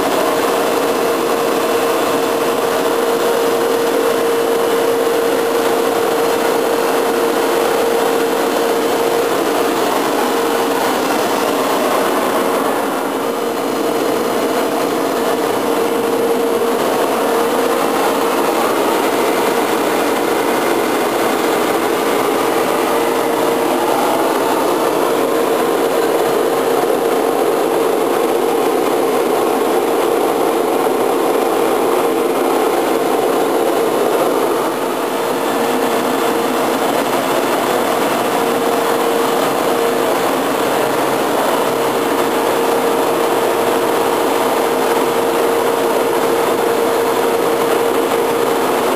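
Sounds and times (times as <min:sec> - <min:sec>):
motor humming drone: 0:00.0 - 0:48.9.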